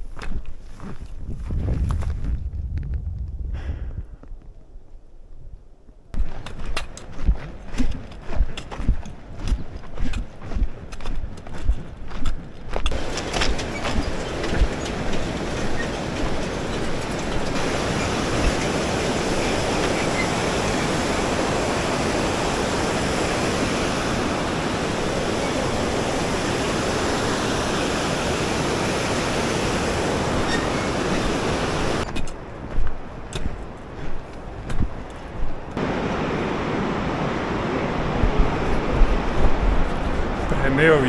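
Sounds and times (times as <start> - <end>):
river rushing roar: 12.9 - 41.0.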